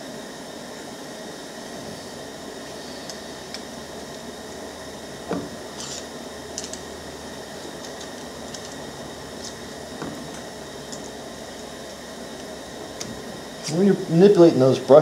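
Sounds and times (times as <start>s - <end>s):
steady background noise: 0.0s - 15.0s
metal parts clicking and tapping: 5.8s - 6.8s, 7.7s - 8.8s.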